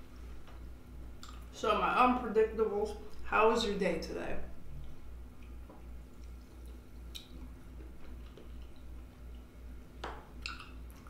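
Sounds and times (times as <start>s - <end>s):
liquid drips: 4.8s - 11.0s.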